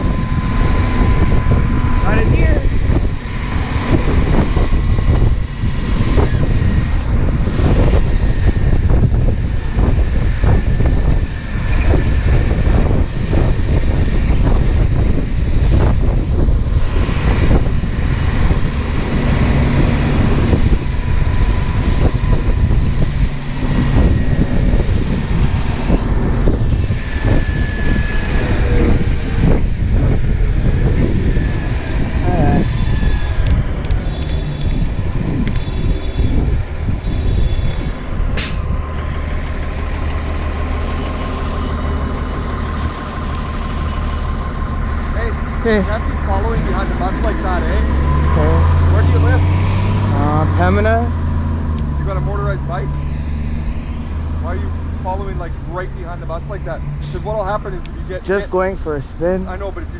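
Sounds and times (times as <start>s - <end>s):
bus engine drone: 0.0s - 59.9s
wind rushing over microphone: 0.0s - 59.9s
air brake hiss: 38.4s - 38.8s.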